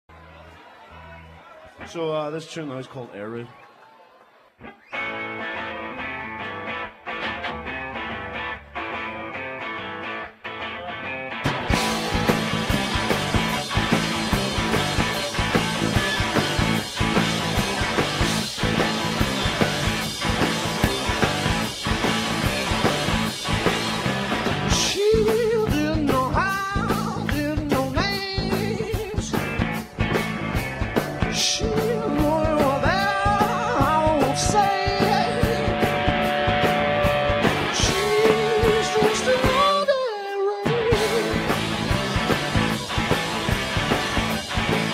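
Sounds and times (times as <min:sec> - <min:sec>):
rock band playing: 0:04.6 - 0:44.9
person singing: 0:24.7 - 0:29.5, 0:31.2 - 0:36.0, 0:37.6 - 0:41.6.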